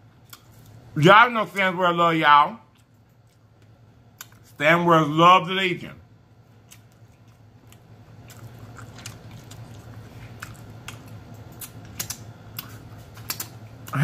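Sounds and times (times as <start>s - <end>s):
chewing mouth clicks: 6.6s - 14.0s.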